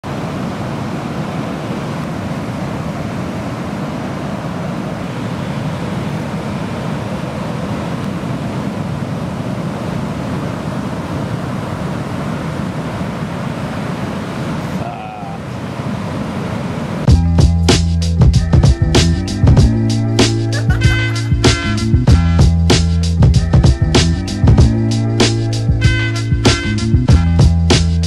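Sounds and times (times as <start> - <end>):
ocean surf breaking: 0.0 - 17.1, 19.8 - 22.1.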